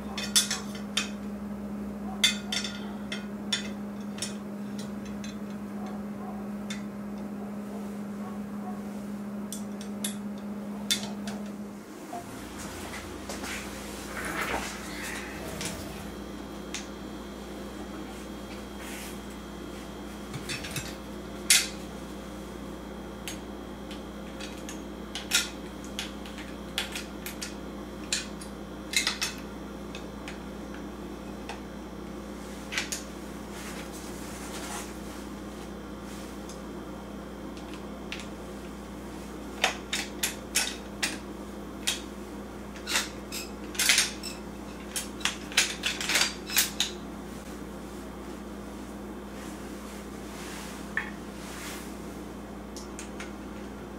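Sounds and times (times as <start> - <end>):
low hum: 0.0 - 20.2.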